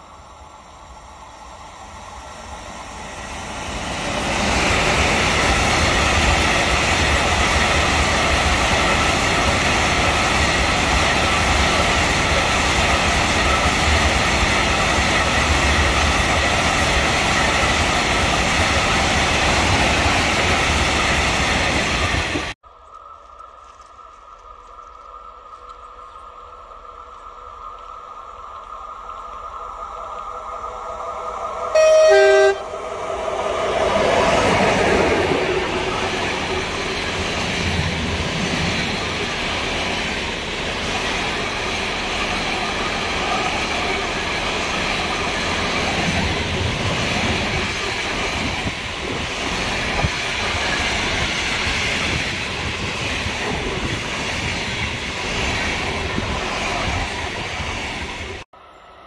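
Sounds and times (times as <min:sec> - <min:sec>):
freight train hum: 0:00.0 - 0:59.0
two-note train horn blast: 0:31.7 - 0:32.8.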